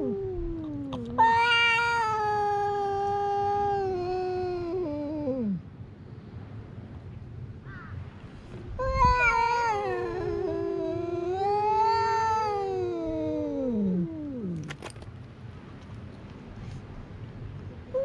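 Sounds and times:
cat yowling: 0.0 - 5.6, 8.8 - 14.7.

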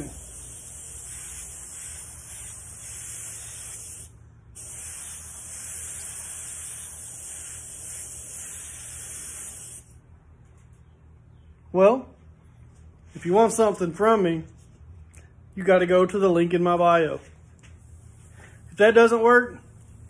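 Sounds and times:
airbrush hissing: 0.0 - 10.0.

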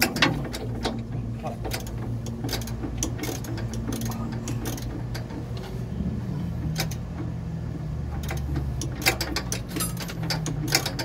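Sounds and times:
steady low hum: 0.0 - 11.0
hand ratchet clicking: 1.7 - 5.3.

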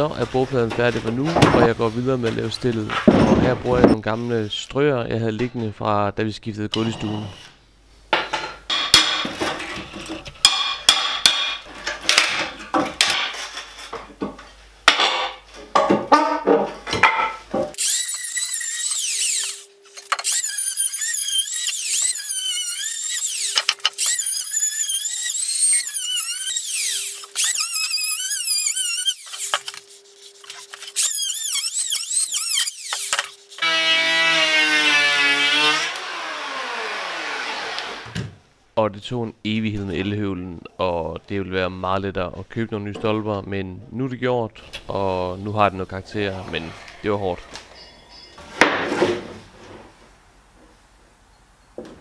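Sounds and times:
electric planer whining: 18.7 - 19.6, 25.1 - 38.2.

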